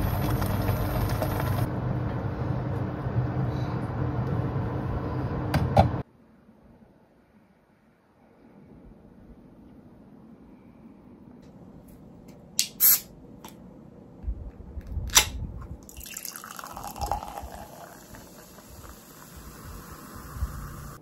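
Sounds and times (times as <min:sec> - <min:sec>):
cola pouring and fizzing: 0:15.8 - 0:21.0.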